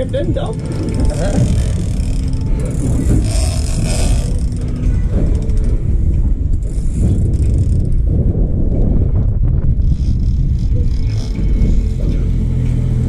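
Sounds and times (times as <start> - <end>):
fishing reel clicking: 0.0 - 5.8, 6.6 - 8.0
boat engine rumble: 0.0 - 13.0
wind on microphone: 0.0 - 13.0.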